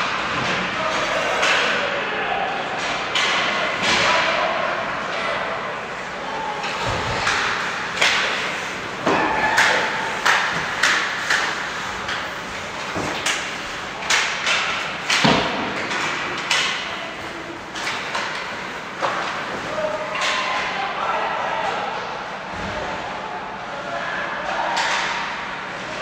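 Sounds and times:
hockey sticks and puck clacking: 0.0 - 1.9, 2.7 - 5.5, 6.3 - 20.8, 24.4 - 25.9
puck and players hitting boards: 0.0 - 2.0, 2.7 - 5.6, 6.2 - 20.9, 24.4 - 25.9
rink background noise: 0.0 - 26.0.

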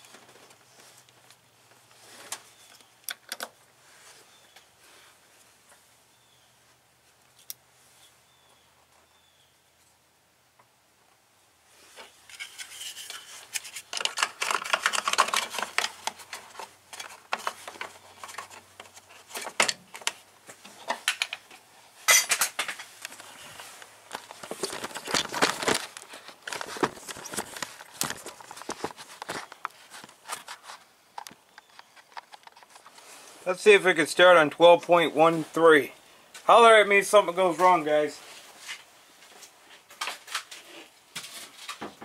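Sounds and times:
metal tools clinking: 22.1 - 22.9.

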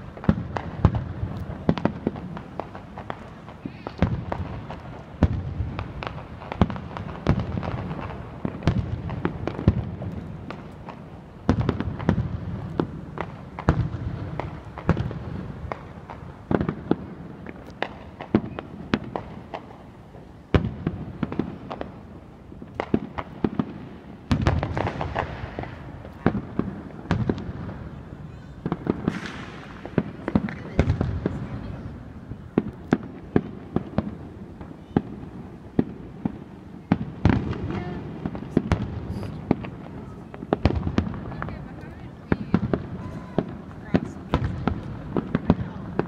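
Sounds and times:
fireworks shells bursting: 28.6 - 31.4.

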